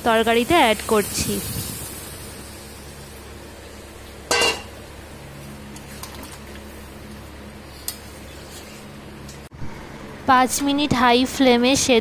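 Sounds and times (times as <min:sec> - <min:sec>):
curry heating on gas burner: 0:00.0 - 0:09.5.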